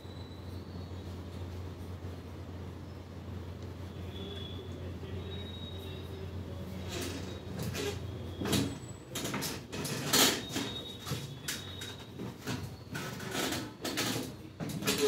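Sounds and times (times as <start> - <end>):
knocks and scuffs of people moving: 6.6 - 15.0.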